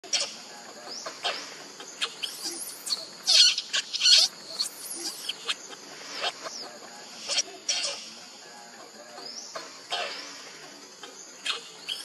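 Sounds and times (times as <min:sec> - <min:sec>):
baby monkey screaming: 0:02.0 - 0:05.5.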